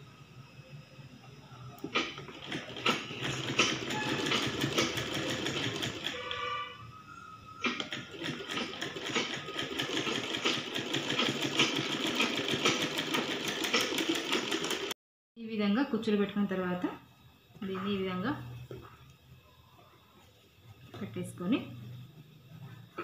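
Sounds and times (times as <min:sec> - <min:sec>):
sewing machine stitching: 0:01.8 - 0:06.6, 0:07.6 - 0:15.0.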